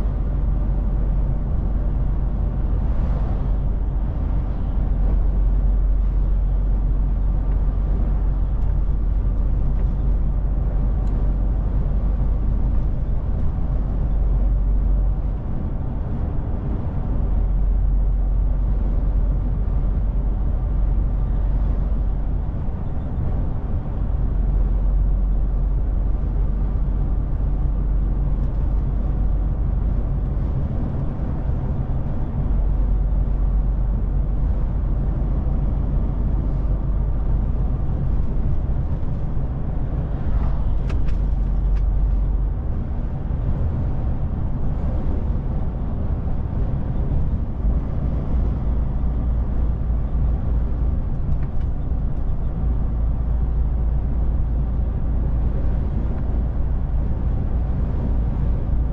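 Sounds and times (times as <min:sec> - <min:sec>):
diesel engine drone: 0:00.0 - 0:58.9
tyre and road noise: 0:00.0 - 0:58.9.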